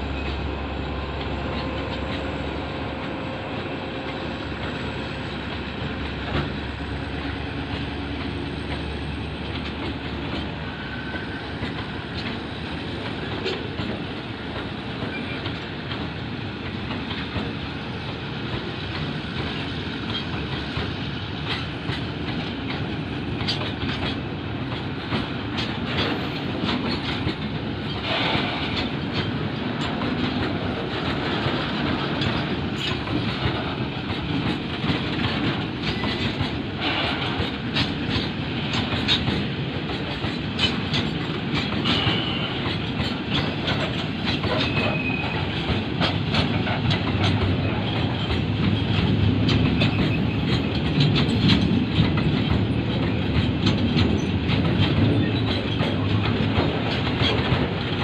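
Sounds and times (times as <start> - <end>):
train wagons rumbling past: 0.0 - 58.0
wheels clacking over rail joints: 1.1 - 58.0.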